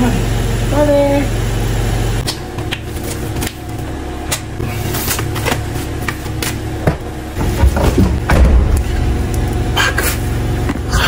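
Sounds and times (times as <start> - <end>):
low hum: 0.0 - 11.0
heavy thumps and bumps: 5.2 - 9.5
car tailgate opening: 7.4 - 9.0.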